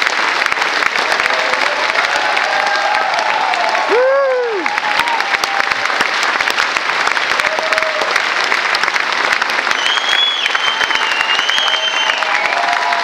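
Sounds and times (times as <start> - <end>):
audience applauding: 0.0 - 13.0
high shrill whistle: 9.7 - 12.6.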